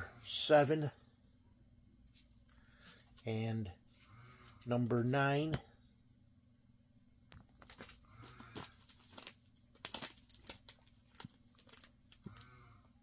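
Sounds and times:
plastic bags crinkling: 7.4 - 12.6.

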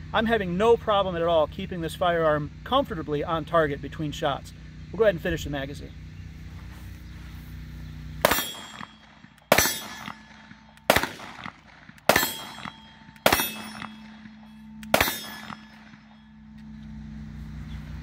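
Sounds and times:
pistol shots: 8.2 - 16.2.

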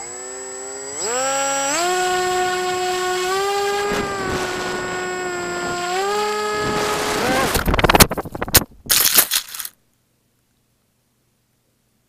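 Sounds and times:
electric model plane motor whine: 0.0 - 7.7
wind noise on microphone: 3.6 - 9.0.

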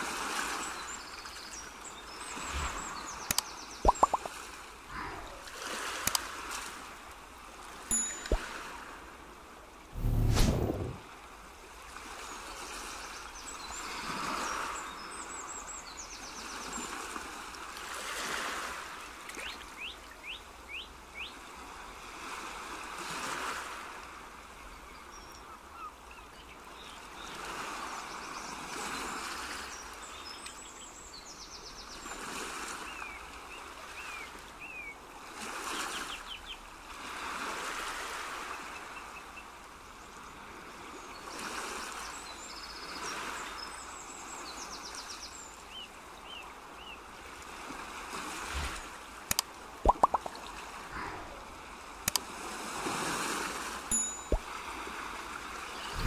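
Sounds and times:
birds chirping: 2.0 - 4.3
rushing noise: 10.0 - 11.0.

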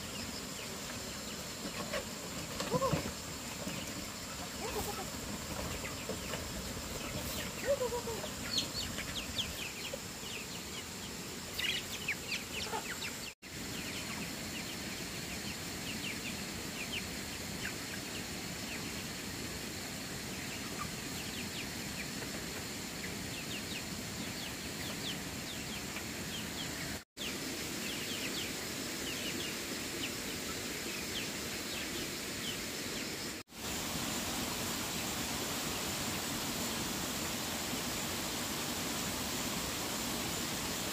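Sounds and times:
chickens clucking: 0.6 - 19.2, 20.1 - 26.4.

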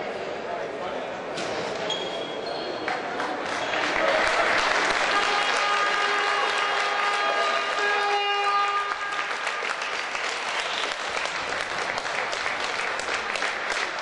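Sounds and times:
spectators clapping: 2.8 - 14.0.

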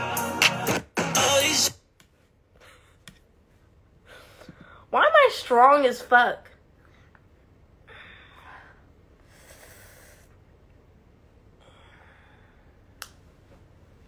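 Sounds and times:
woman breathing softly: 7.8 - 10.4, 11.6 - 12.9.

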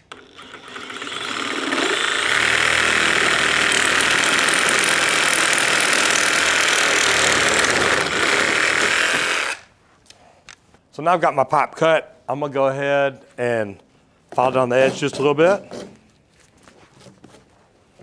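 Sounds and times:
reciprocating saw cutting plastic pipe: 0.0 - 9.7.

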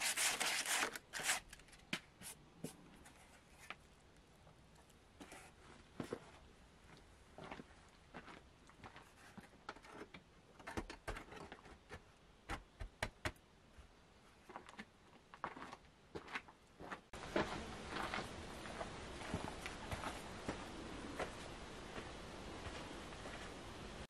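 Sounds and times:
outdoor ambience: 0.0 - 24.0.

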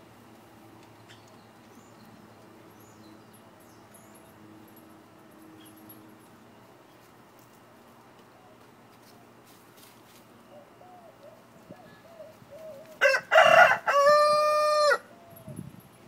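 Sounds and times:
rooster crowing: 12.9 - 15.2.

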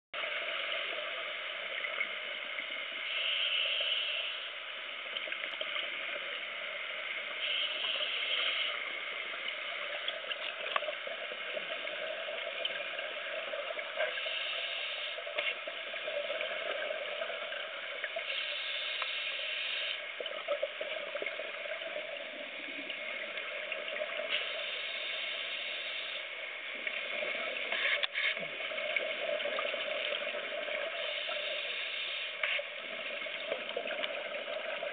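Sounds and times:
underwater background: 0.2 - 34.9
faint clicks: 7.6 - 11.8, 15.0 - 15.8, 17.6 - 21.6, 22.7 - 34.9.

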